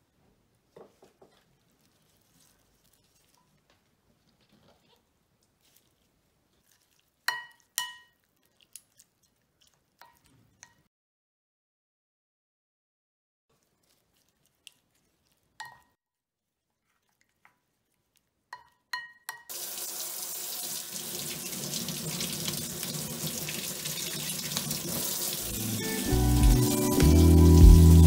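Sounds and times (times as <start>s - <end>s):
music: 25.4s - 28.0s.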